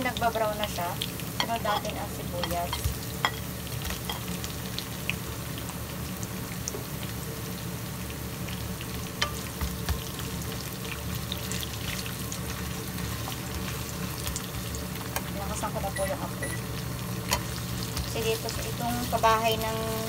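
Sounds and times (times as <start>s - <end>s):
vegetables sizzling in hot oil: 0.0s - 20.0s.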